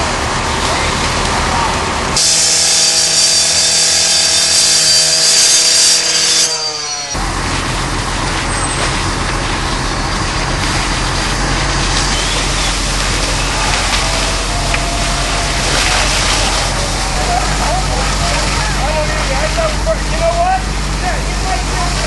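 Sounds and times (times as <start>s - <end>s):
flames burning: 0.0s - 6.0s, 7.1s - 22.0s
fire engine motors running: 0.0s - 22.0s
power saw cutting metal: 2.2s - 22.0s.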